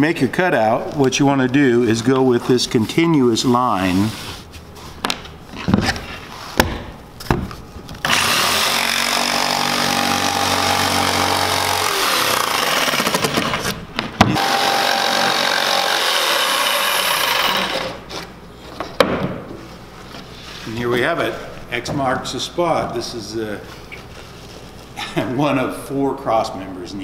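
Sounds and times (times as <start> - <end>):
jigsaw cutting wood panel: 8.0 - 13.7, 14.3 - 18.2.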